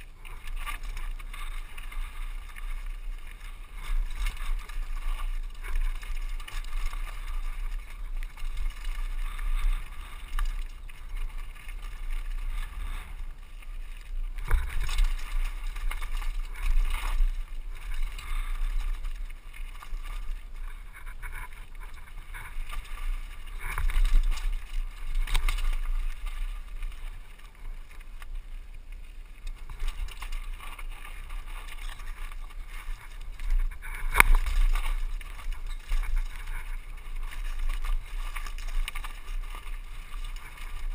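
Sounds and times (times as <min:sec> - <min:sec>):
mountain bike rattling over rocks: 0:00.0 - 0:40.9
wheels knocking on rocks: 0:00.0 - 0:40.9
wind rumbling on microphone: 0:00.0 - 0:40.9.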